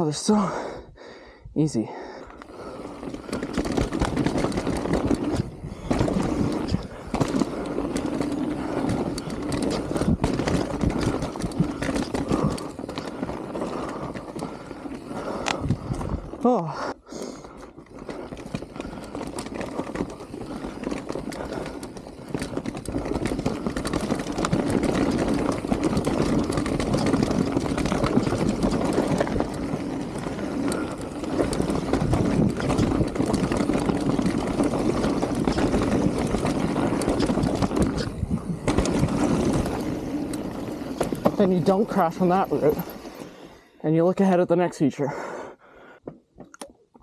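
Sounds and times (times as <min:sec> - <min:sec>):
bike rattles and knocks: 0:02.3 - 0:43.5
tyres rumbling over dirt: 0:02.4 - 0:16.8, 0:17.4 - 0:43.6
wind on microphone: 0:15.5 - 0:16.4.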